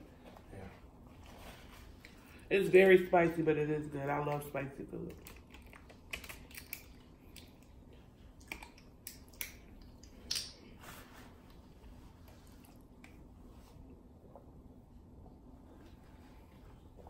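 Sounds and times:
people chewing: 5.1 - 13.4.

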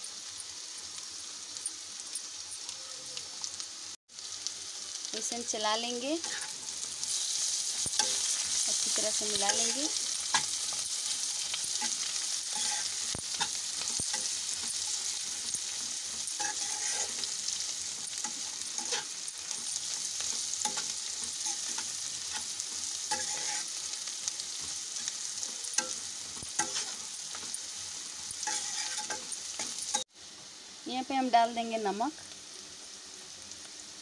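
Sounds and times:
vegetables sizzling in oil: 0.0 - 34.0
spatula scraping and tapping pan: 11.7 - 17.3, 20.2 - 23.8, 24.6 - 27.6, 28.3 - 30.0.

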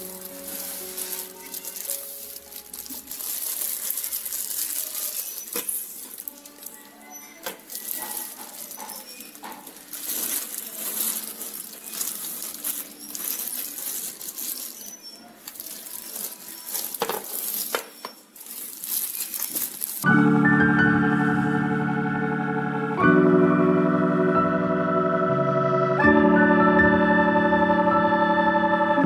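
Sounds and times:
plastic packaging crinkling: 0.0 - 20.1
organ-like music: 20.0 - 29.0.

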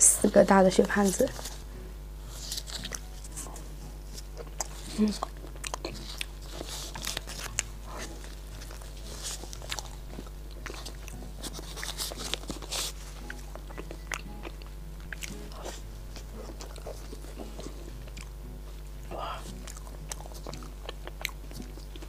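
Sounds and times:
faint steady hum: 0.0 - 22.0
person chewing with wet smacks: 4.4 - 22.0.

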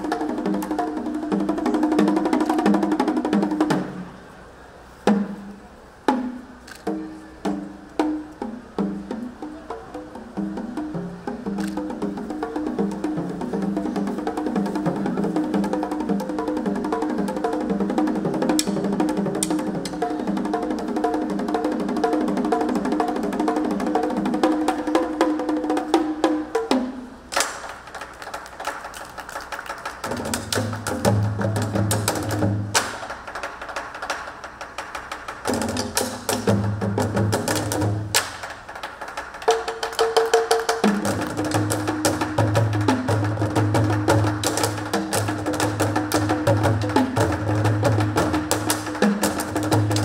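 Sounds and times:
fast drumming on tuned drums: 0.0 - 4.0, 6.1 - 50.0
sharp stick strikes: 18.5 - 18.8.

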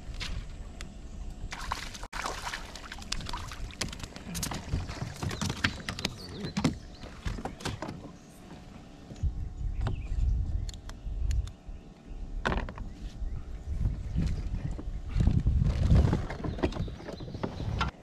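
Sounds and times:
water sloshing against kayak: 1.5 - 9.2.

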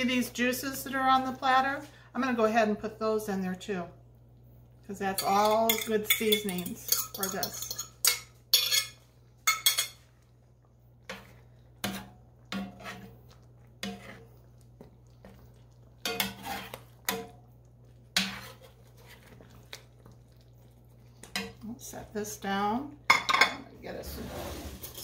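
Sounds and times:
utensil scraping a platter: 11.0 - 14.4, 15.2 - 17.2, 18.1 - 19.7, 23.9 - 25.0.

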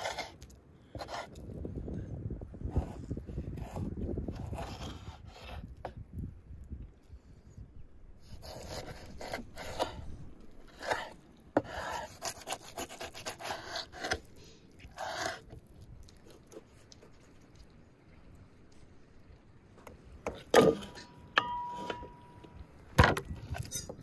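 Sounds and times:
knife scraping strokes: 8.2 - 15.6.

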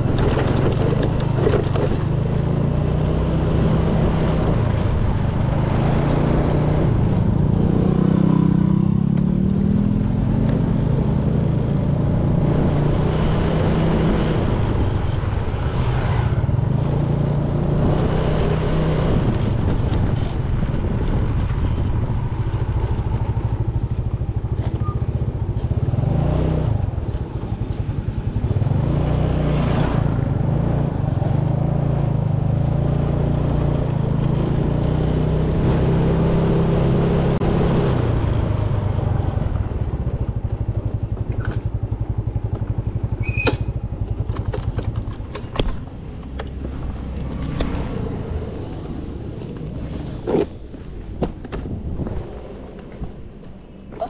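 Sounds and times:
motor scooter engine running: 0.0 - 52.8
road and wind noise: 0.0 - 54.0.

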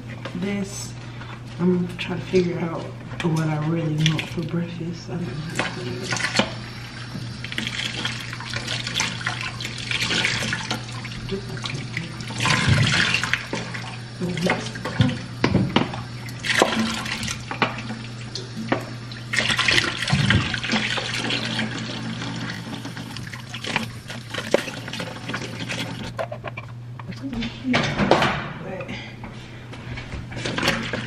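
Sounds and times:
steady low hum: 0.0 - 31.0
tap water running and splashing: 2.7 - 26.2, 30.3 - 31.0.

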